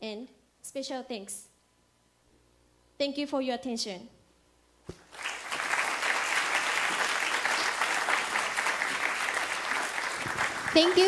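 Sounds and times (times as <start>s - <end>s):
audience applauding: 5.0s - 11.0s.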